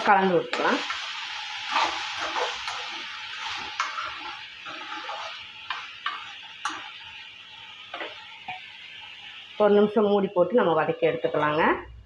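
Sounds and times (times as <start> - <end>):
spatula scraping a pan: 0.0 - 7.0
vegetables sizzling in a pan: 0.0 - 12.0.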